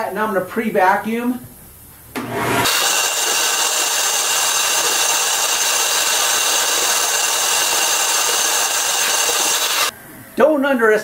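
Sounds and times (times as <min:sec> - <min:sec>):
shop vacuum running: 0:02.1 - 0:09.9
vacuum nozzle on carpet: 0:02.6 - 0:09.9.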